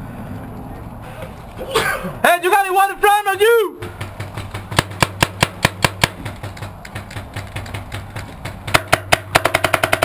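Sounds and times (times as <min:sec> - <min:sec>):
paintball markers firing: 0:03.9 - 0:10.0.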